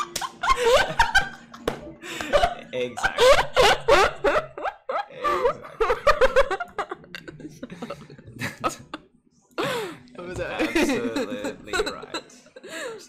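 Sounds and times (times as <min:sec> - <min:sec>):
woman and man laughing: 0:00.0 - 0:09.0.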